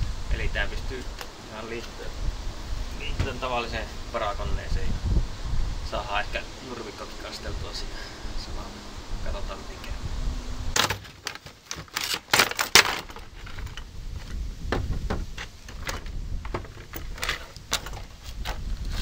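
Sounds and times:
small parts set on wooden bench: 0:10.8 - 0:14.4, 0:15.1 - 0:18.7.

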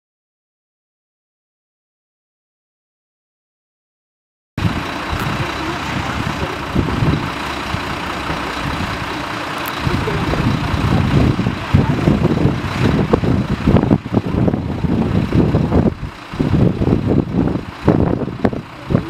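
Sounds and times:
helicopter rotor and turbines: 0:04.6 - 0:19.0.

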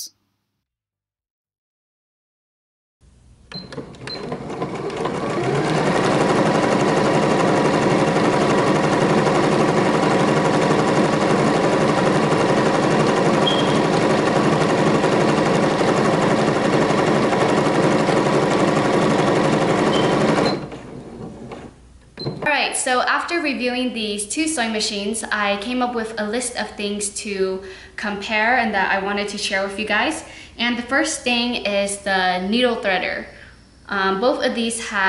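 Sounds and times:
sewing machine stitching: 0:03.5 - 0:21.8.

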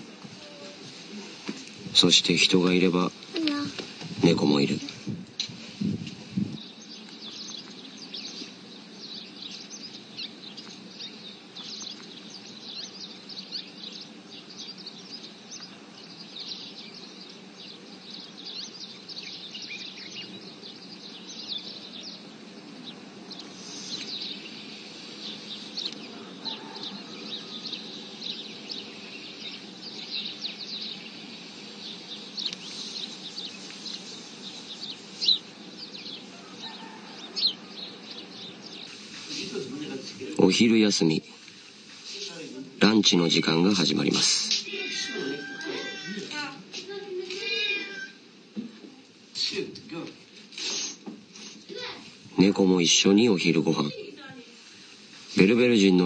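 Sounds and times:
small birds chirping: 0:00.0 - 0:56.0.

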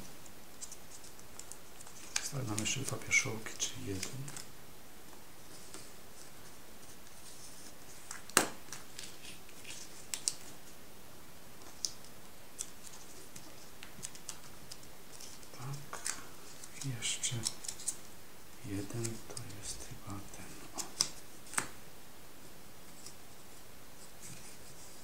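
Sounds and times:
quiet paper handling: 0:00.0 - 0:04.5, 0:05.1 - 0:10.8, 0:11.6 - 0:21.8, 0:22.4 - 0:25.0
metallised paper crackling: 0:00.6 - 0:04.5, 0:05.5 - 0:10.8, 0:11.6 - 0:18.0.

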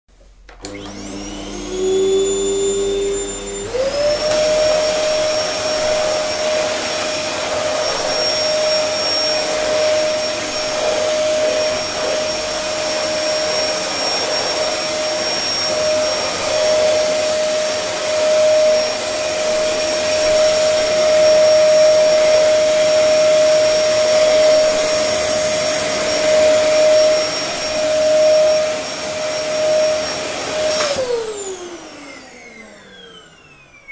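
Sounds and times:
vacuum cleaner motor whining: 0:00.5 - 0:33.9.

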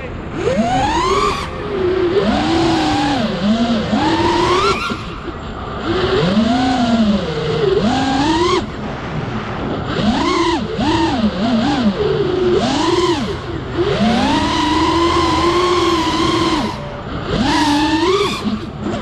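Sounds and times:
drone motors and propellers whining: 0:00.0 - 0:19.0
rush of air: 0:08.7 - 0:10.1.

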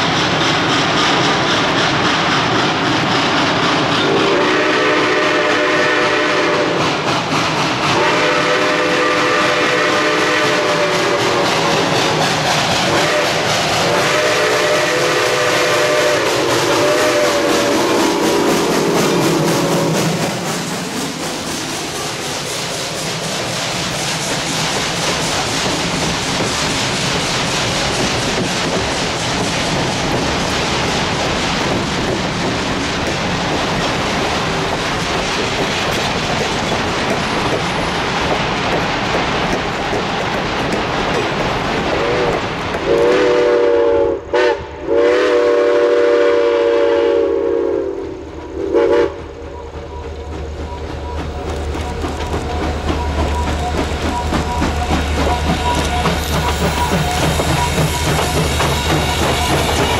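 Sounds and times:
train wheels clicking on rail joints: 0:00.0 - 0:46.7, 0:48.0 - 0:59.9
steam locomotive whistle: 0:04.0 - 0:07.0, 0:07.9 - 0:12.2, 0:12.8 - 0:20.4, 0:41.9 - 0:50.8, 0:52.4 - 0:59.9.

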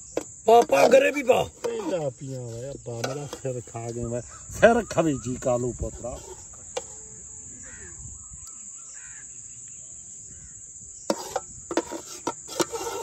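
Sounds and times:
insects chirring: 0:00.0 - 0:13.0
man talking: 0:00.5 - 0:06.4.

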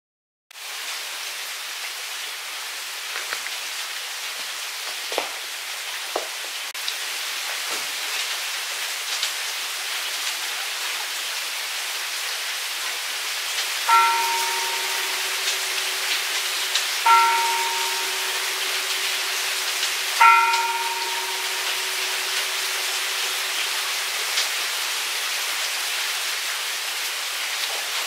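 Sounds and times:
heavy rain falling: 0:00.6 - 0:28.0
louder drips: 0:13.9 - 0:24.5.

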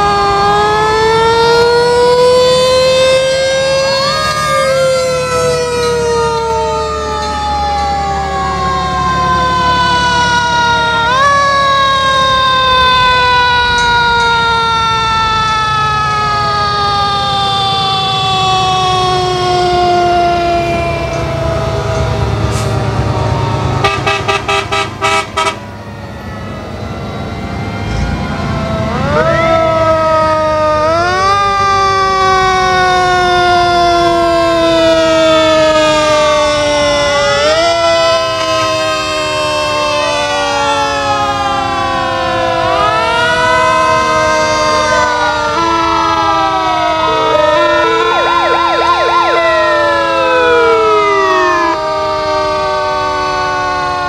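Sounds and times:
short sharp siren blasts: 0:00.0 - 0:33.0, 0:33.8 - 0:54.0
fire truck sirens wailing: 0:00.0 - 0:54.0
truck engines rumbling: 0:00.0 - 0:54.0.

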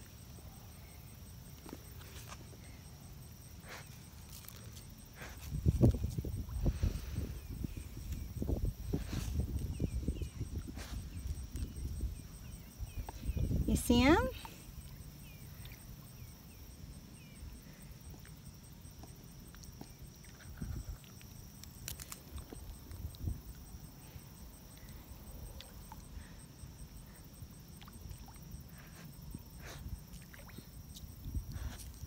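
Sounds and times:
wind buffeting microphone: 0:05.4 - 0:14.3.

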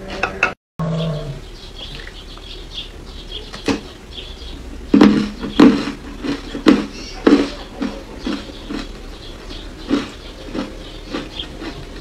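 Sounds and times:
ice crunching while chewed: 0:05.1 - 0:12.0.

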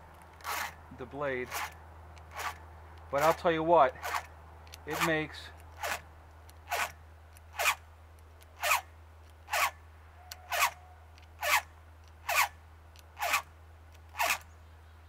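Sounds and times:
file rasping on saw chain: 0:00.4 - 0:00.8, 0:01.4 - 0:02.6, 0:03.2 - 0:04.3, 0:04.9 - 0:06.0, 0:06.6 - 0:07.8, 0:08.6 - 0:08.8, 0:09.5 - 0:12.5, 0:13.2 - 0:13.5, 0:14.1 - 0:14.4.

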